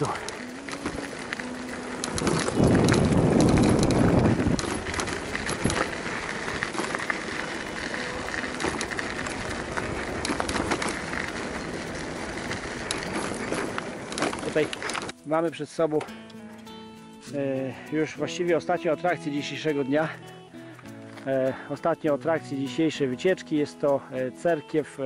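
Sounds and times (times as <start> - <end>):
bicycle tyres on gravel: 0.0 - 15.6.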